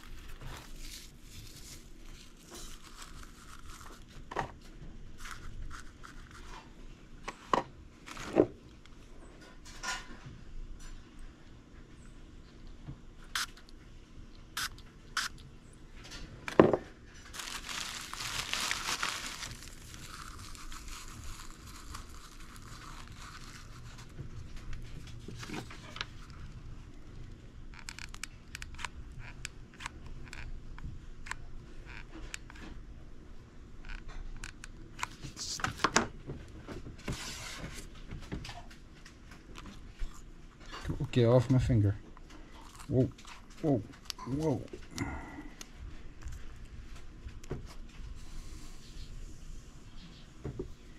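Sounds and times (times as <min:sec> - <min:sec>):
paper and plastic rustling: 0:00.0 - 0:06.7, 0:16.0 - 0:26.7.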